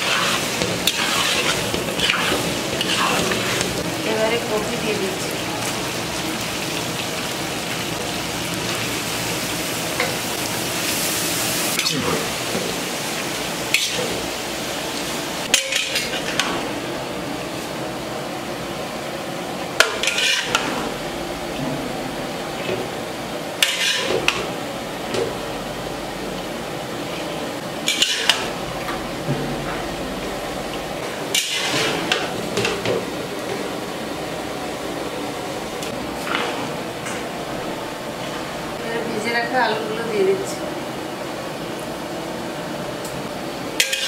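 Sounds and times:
spatula scraping a pan: 0.0 - 3.8, 13.7 - 14.1, 19.8 - 20.7, 23.6 - 24.4, 27.9 - 28.5, 31.3 - 32.2
frying sizzle: 0.0 - 44.0.

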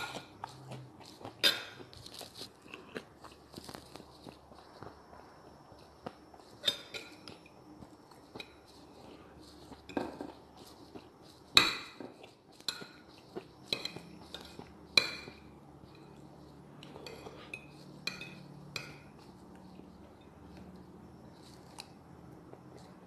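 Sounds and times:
cutlery scraping ceramic plate: 6.6 - 7.4.

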